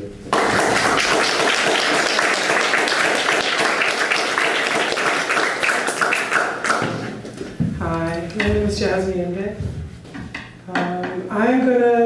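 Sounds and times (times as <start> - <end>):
audience applauding: 0.3 - 7.2.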